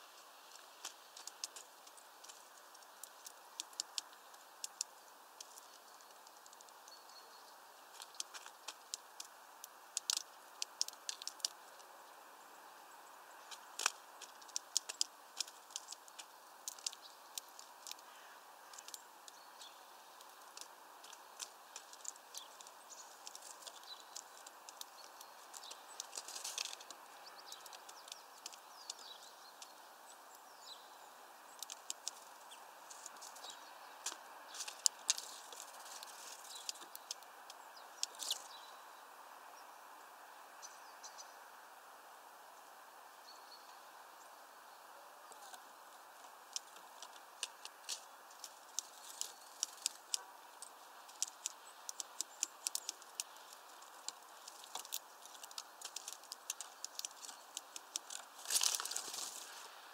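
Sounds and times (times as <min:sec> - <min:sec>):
faint hiss: 0:00.0 - 0:59.9
bird pecking taps and clicks: 0:13.5 - 0:18.1, 0:31.6 - 0:32.3, 0:46.5 - 0:59.2.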